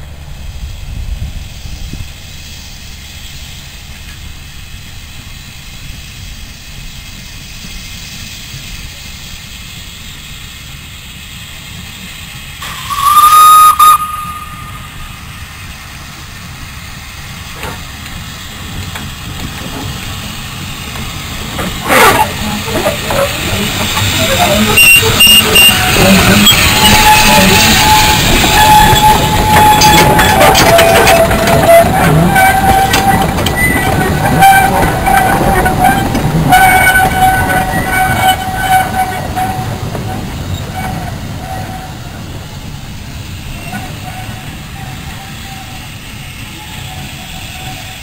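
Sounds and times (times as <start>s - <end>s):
steam locomotive whistle: 12.6s - 15.4s, 21.8s - 39.8s, 43.6s - 48.0s
steam engine running gear: 14.0s - 41.8s.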